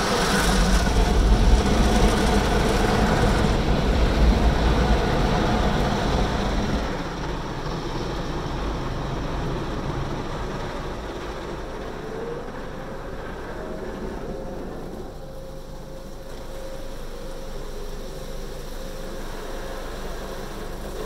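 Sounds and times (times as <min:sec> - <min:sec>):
car wash machinery running: 0:00.0 - 0:21.0
faint rising whine: 0:00.0 - 0:21.0
heavy low rumble: 0:00.0 - 0:21.0
water spraying over car: 0:15.1 - 0:21.0.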